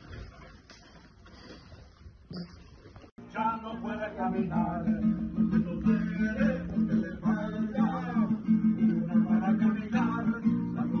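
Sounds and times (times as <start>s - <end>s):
acoustic guitar strumming: 3.2s - 11.0s
man singing: 3.2s - 11.0s.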